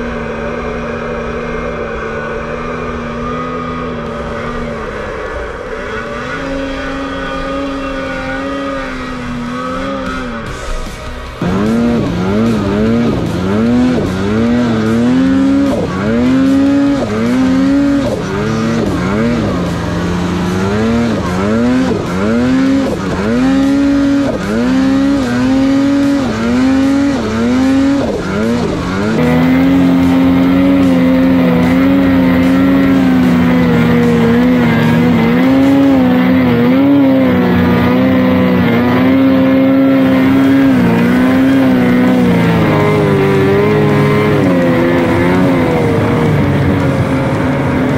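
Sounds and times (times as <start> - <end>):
snowmobile engine revving: 0.0 - 47.9.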